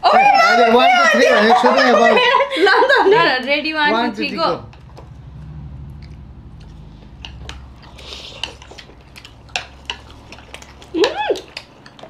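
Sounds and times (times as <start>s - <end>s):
people chewing: 4.1s - 12.0s
low hum: 4.2s - 10.9s
chopsticks clicking on bowls: 4.7s - 12.0s.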